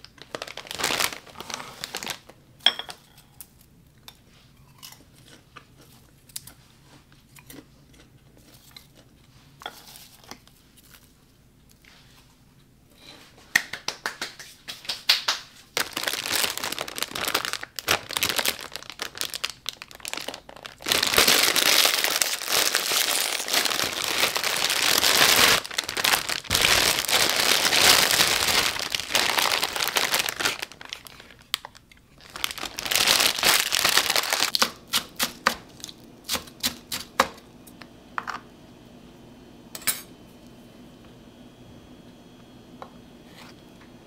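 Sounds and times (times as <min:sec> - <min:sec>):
plastic packaging crinkling: 0:00.0 - 0:02.4, 0:15.7 - 0:37.2.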